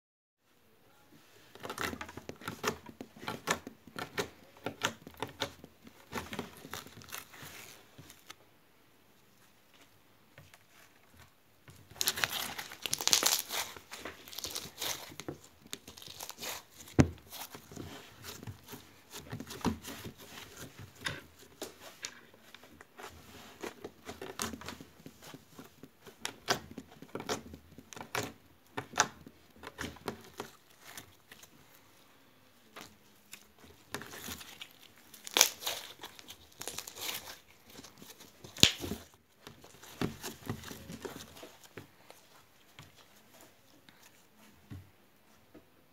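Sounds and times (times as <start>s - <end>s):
slime crackling and popping: 11.9s - 16.8s, 34.1s - 41.0s.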